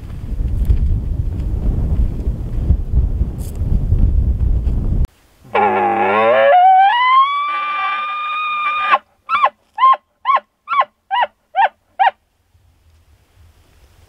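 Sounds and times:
elk bugling: 5.4s - 12.2s.

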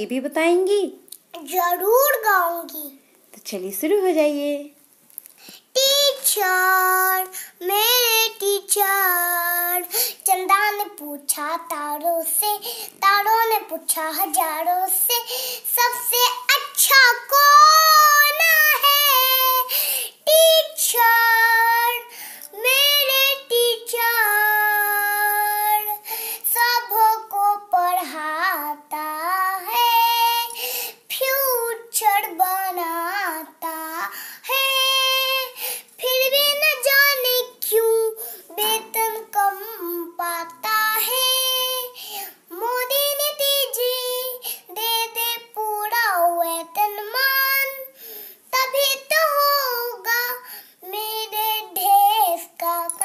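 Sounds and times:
girl singing unaccompanied: 0.7s - 3.4s, 4.6s - 53.0s.

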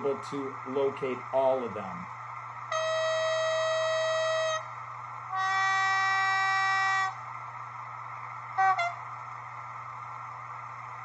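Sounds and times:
diesel engine hum: 0.0s - 11.0s
locomotive horn through small speaker: 2.7s - 7.3s, 8.6s - 9.2s.

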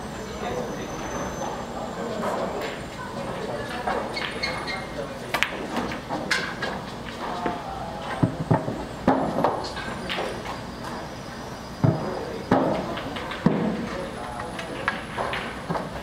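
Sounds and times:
low voices: 0.0s - 16.0s
pool balls clicking: 3.4s - 10.6s, 11.8s - 16.0s.

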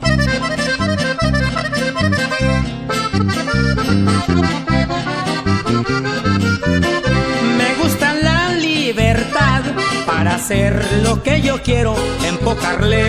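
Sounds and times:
accordion playing: 0.0s - 13.0s
bouncing bass line: 0.0s - 13.0s
strummed guitar: 0.0s - 13.0s
person singing: 7.4s - 13.0s.

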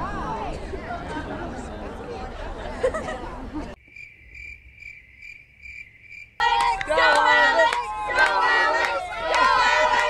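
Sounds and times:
crowd chatter: 0.0s - 3.8s, 6.4s - 10.0s
loud crowd voices: 0.0s - 3.8s, 6.4s - 10.0s
insect chirping: 3.8s - 6.4s.

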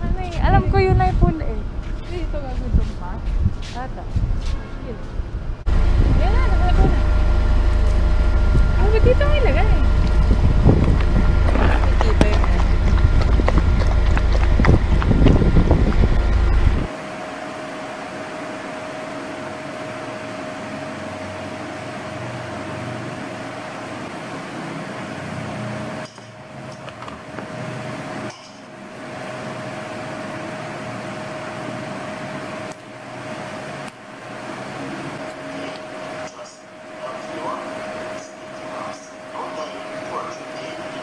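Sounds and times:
wind rumble on microphone: 0.0s - 16.9s
ventilation fan hum: 0.0s - 41.0s.

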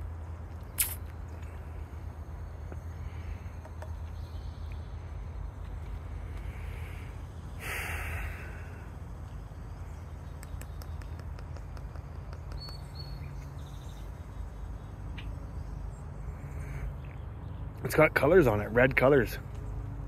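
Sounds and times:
steady low rumble: 0.0s - 20.0s
short burst of noise: 0.8s - 1.1s
faint high bird chirps: 9.7s - 17.6s.

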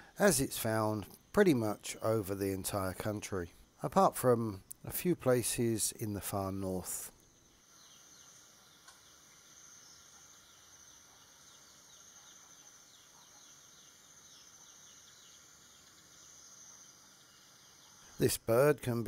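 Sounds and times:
high-pitched insect drone: 7.4s - 18.8s.

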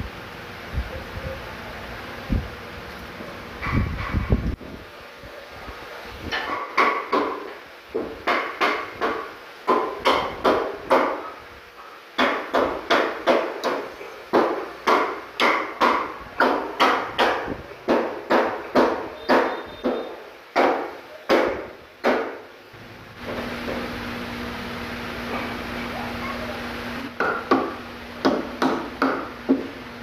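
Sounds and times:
hard knocks on wood: 6.5s - 11.3s, 12.2s - 22.4s, 27.1s - 29.8s.

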